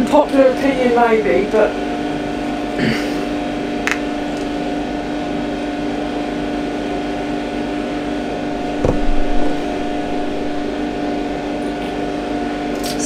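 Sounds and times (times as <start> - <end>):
electric motor humming: 0.0 - 13.0
short thump: 8.8 - 9.6.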